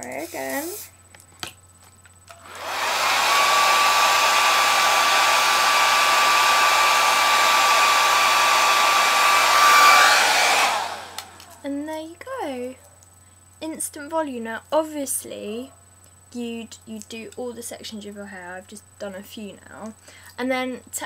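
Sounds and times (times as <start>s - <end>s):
hair dryer blowing: 2.3s - 11.6s.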